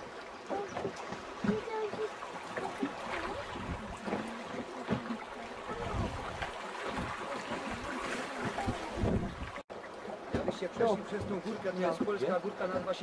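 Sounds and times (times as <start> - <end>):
river water running: 0.0 - 13.0
wind gusting on microphone: 5.6 - 9.6.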